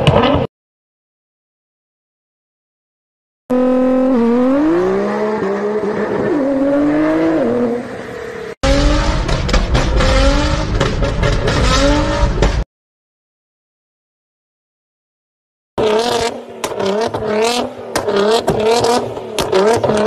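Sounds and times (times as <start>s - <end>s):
car engine accelerating: 3.5s - 12.6s
car exhaust accelerating hard: 8.6s - 12.6s.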